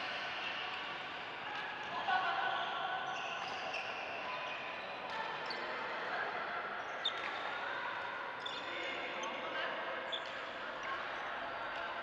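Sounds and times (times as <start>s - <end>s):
shoes squeaking on court floor: 2.6s - 4.8s.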